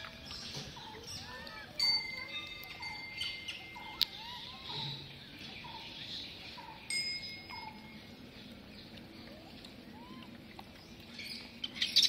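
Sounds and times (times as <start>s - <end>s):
bird calling: 0.0s - 12.0s
metallic chime ringing: 1.8s - 4.8s, 6.9s - 8.0s.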